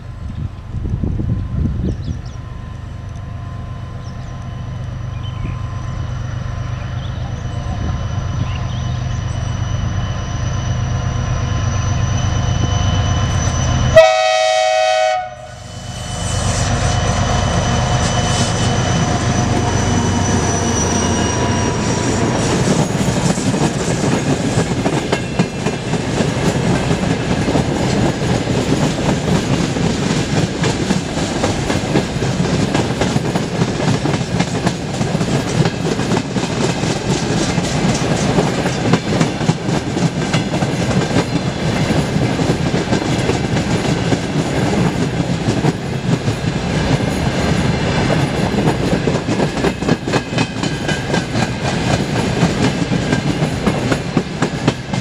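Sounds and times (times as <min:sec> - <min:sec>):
diesel locomotives droning: 0:00.0 - 0:55.0
train horn blast: 0:13.9 - 0:16.8.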